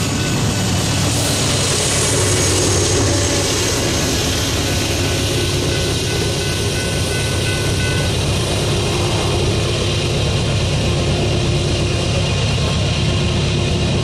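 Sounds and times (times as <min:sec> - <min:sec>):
steady low rumble: 0:00.0 - 0:14.0
electronic crossing bell: 0:05.6 - 0:08.2.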